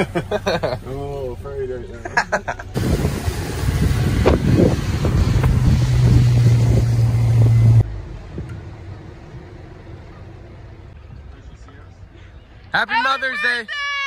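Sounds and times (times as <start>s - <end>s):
boat motor humming: 0.0s - 12.7s
wind buffeting microphone: 2.7s - 8.6s.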